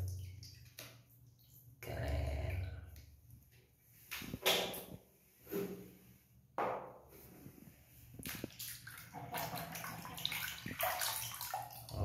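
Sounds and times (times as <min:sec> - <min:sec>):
water dripping: 0:00.0 - 0:03.4, 0:08.1 - 0:12.0
water sloshing in plastic basin: 0:08.1 - 0:12.0.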